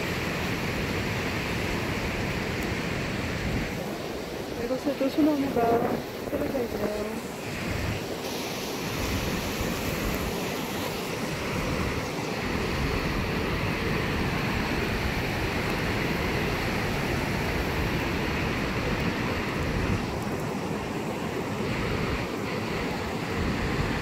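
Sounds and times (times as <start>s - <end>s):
stream rushing: 0.0s - 24.0s.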